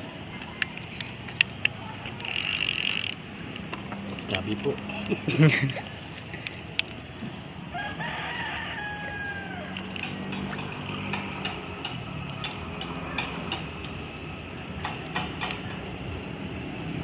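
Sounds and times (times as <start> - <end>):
rooster crowing: 7.6 - 10.3.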